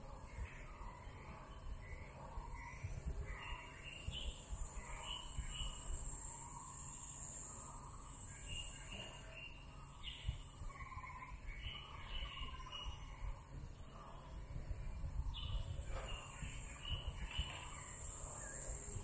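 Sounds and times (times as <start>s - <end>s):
birds chirping and calling: 0.4s - 14.0s, 15.2s - 19.0s.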